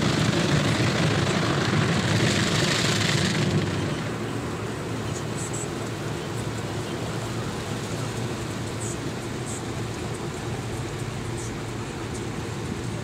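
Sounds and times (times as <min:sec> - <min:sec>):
car wash brushes rumbling: 0:00.0 - 0:13.0.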